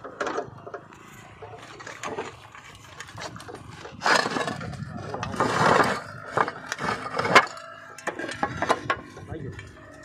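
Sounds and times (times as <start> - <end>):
roof tiles clicking and knocking: 0.0 - 10.0
rasping scrapes: 1.2 - 9.0.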